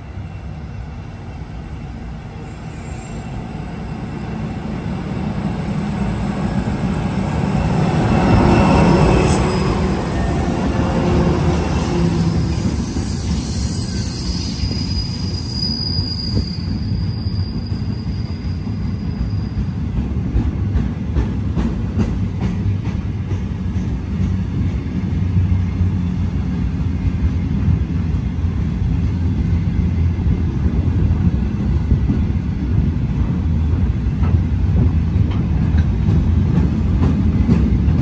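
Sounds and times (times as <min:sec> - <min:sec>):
train wheels rumbling on rails: 0:00.0 - 0:38.0
high wheel squeal: 0:01.2 - 0:20.0.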